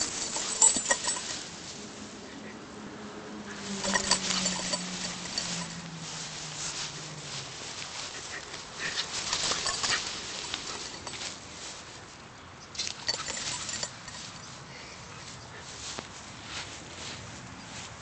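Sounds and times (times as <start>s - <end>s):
grass rustling: 0.0s - 18.0s
soft footsteps on grass: 3.5s - 12.6s, 13.8s - 18.0s.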